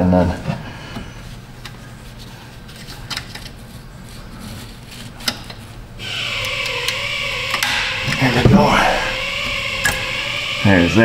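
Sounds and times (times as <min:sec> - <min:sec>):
screwdrivers clicking and scraping: 0:02.7 - 0:04.2, 0:04.9 - 0:05.7.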